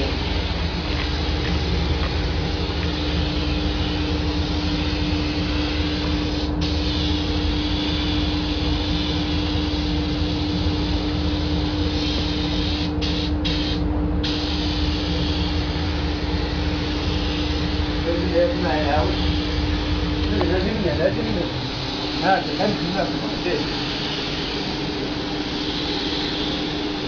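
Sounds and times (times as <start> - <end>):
extraction fan droning: 0.0 - 27.0
spray gun hissing: 0.0 - 27.0.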